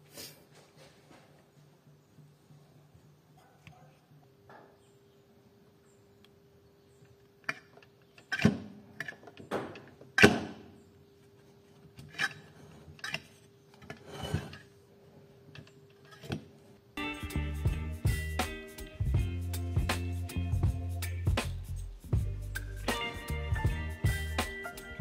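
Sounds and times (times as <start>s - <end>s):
tools knocking and scraping: 11.8s - 14.8s, 15.5s - 16.5s.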